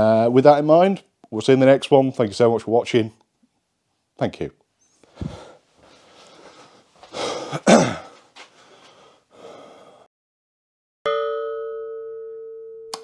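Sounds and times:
man's breathy vocal sounds: 5.0 - 10.1.

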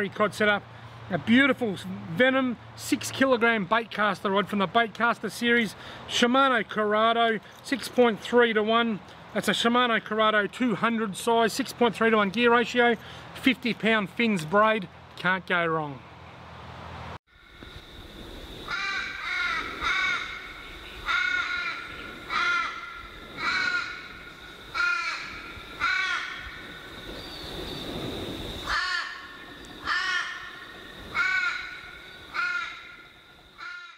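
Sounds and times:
crow cawing: 18.7 - 27.0, 28.7 - 33.9.

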